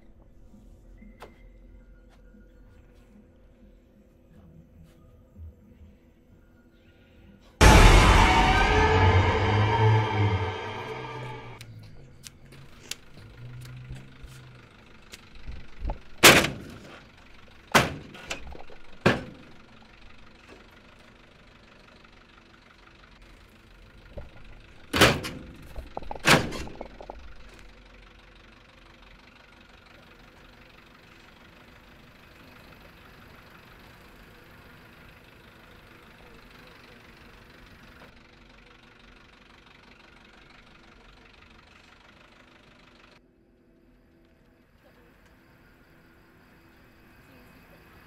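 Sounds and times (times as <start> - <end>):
bus engine idling: 12.0 - 48.0.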